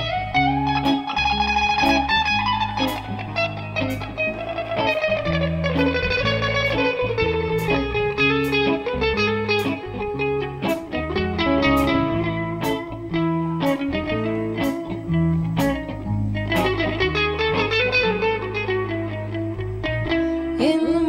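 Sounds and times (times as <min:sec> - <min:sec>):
bass guitar: 0:00.0 - 0:21.0
electric guitar lead sliding down: 0:00.0 - 0:21.0
drums keeping steady beat: 0:10.7 - 0:15.0.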